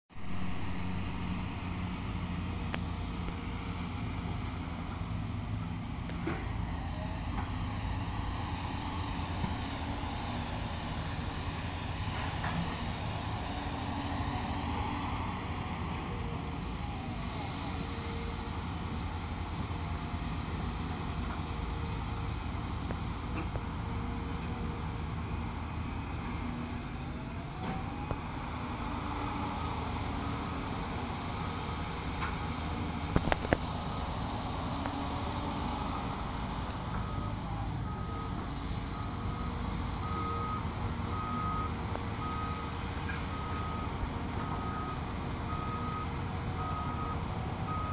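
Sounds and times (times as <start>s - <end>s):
excavator diesel engines running: 0.1s - 47.9s
hydraulic whines: 6.0s - 19.8s.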